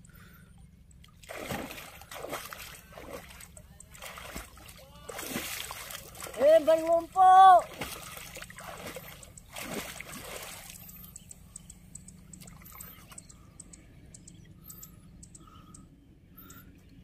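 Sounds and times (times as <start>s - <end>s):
water trickling and dripping: 0.8s - 15.5s
water splashing: 1.0s - 11.2s.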